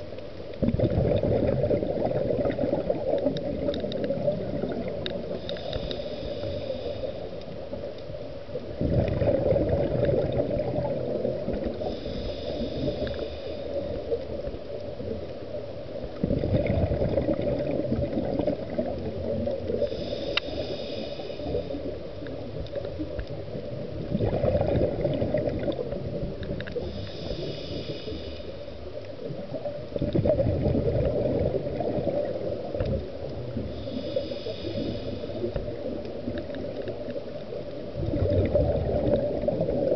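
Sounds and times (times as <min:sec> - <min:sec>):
exhaled bubbles gurgling: 0:00.0 - 0:39.9
hissing inhale through regulator: 0:05.0 - 0:08.2, 0:11.6 - 0:14.6, 0:18.6 - 0:22.9, 0:25.7 - 0:29.1, 0:32.8 - 0:37.5.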